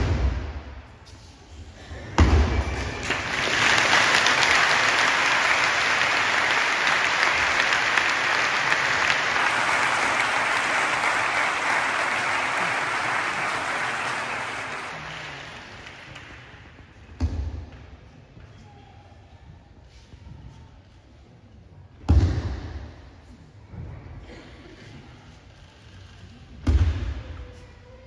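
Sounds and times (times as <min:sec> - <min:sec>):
large audience applauding: 0:02.8 - 0:16.4.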